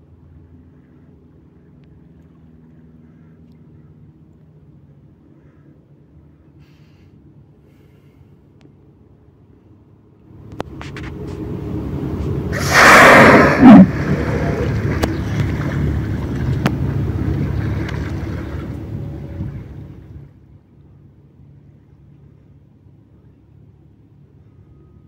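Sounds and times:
whale blowing exhale: 6.6 - 8.4, 12.2 - 15.9
whale inhale: 6.6 - 8.5, 12.5 - 15.6
rushing noise: 10.8 - 20.0.

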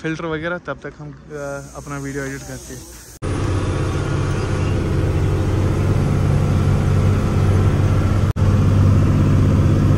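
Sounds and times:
road noise: 0.0 - 9.9
truck engine droning: 3.2 - 9.9.

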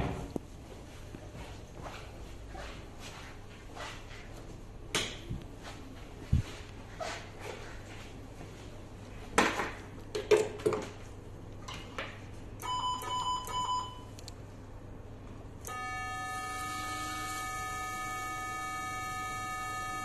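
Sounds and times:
short electronic beeps: 12.6 - 14.1
steady multi-note tone: 15.7 - 20.0.

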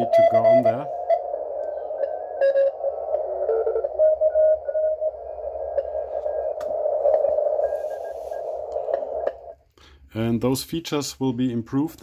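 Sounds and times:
morse code tones: 0.0 - 9.5
radio band noise: 0.0 - 9.6.

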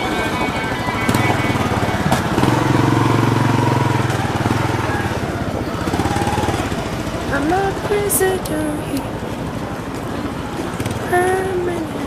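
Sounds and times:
motorcycle engine running: 0.0 - 8.6
busy street noise: 0.0 - 12.0.

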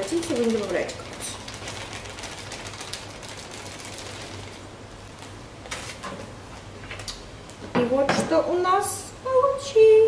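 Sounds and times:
packet crinkling and rustling: 0.0 - 6.0.

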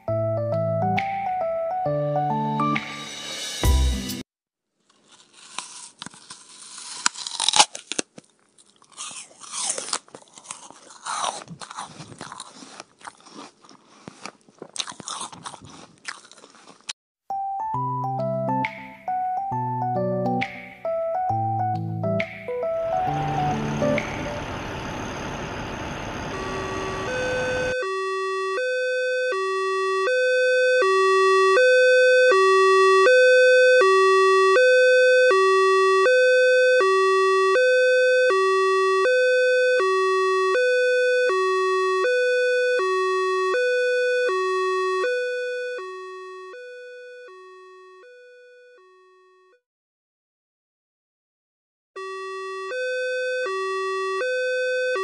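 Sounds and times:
two-tone ambulance siren: 22.5 - 49.6, 52.0 - 55.0.

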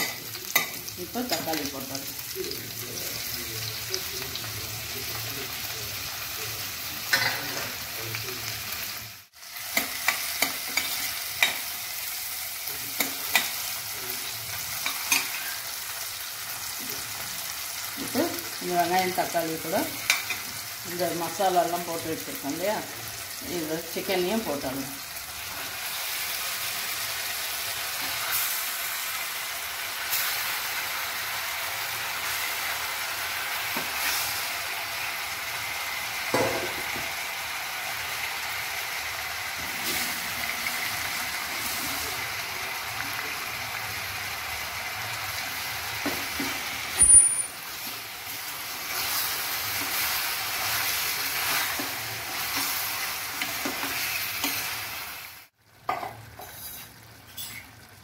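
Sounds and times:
chicken sizzling in hot oil: 0.0 - 58.0
sharp metal clank: 47.0 - 47.6.

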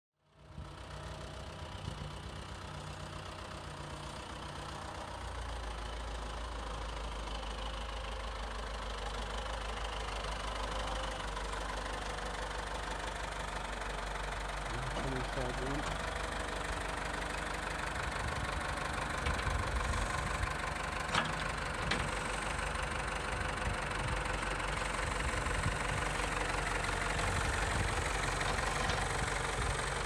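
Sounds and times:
tractor diesel engine running: 0.4 - 30.0.

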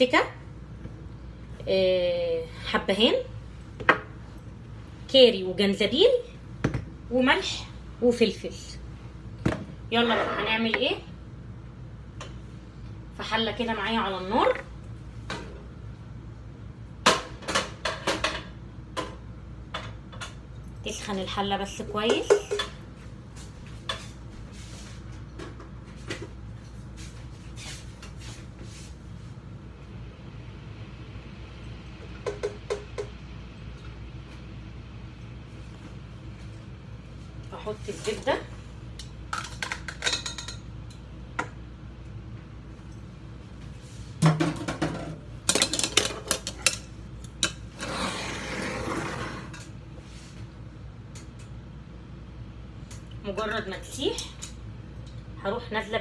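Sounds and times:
low steady hum: 0.0 - 56.0
kitchenware clinking and knocking: 22.0 - 22.8.

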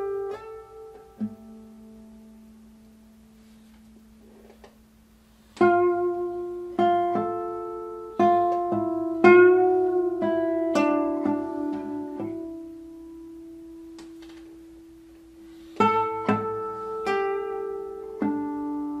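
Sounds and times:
classical guitar playing: 0.0 - 19.0.

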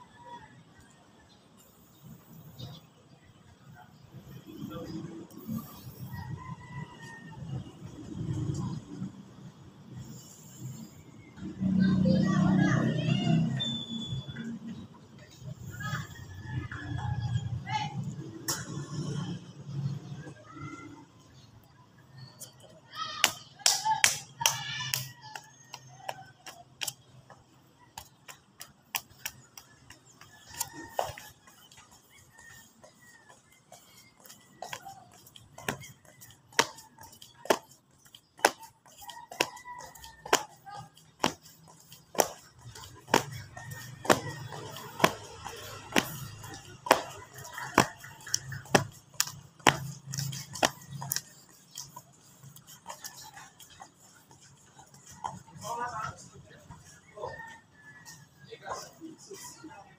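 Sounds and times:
sharp claps: 23.2 - 31.2.

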